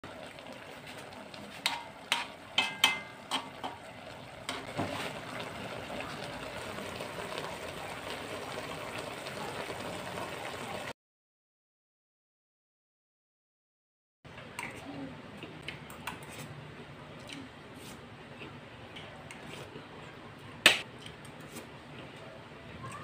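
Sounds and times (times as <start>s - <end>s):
broth simmering soft bubbling: 0.0s - 10.9s.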